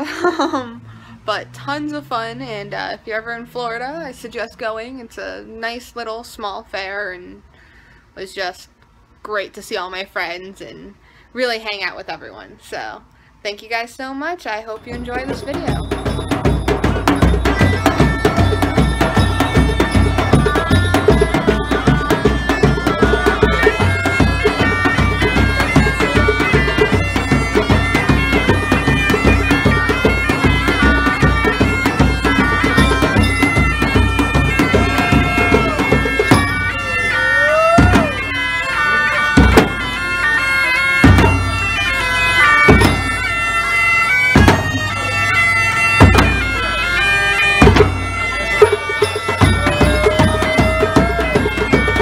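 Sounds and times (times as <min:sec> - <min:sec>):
bass drum beats: 0:14.8 - 0:36.9, 0:47.6 - 0:52.0
bagpipes playing a tune: 0:14.8 - 0:52.0.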